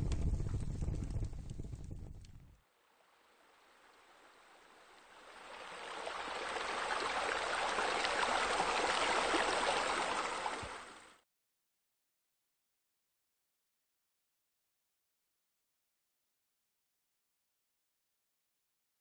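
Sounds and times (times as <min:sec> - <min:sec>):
water splashing into a pool: 0:02.8 - 0:11.2.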